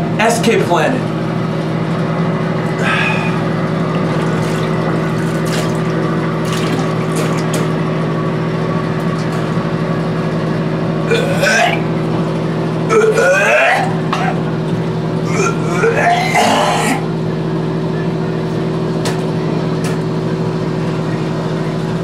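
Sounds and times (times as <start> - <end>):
steady loud hum: 0.0 - 22.0.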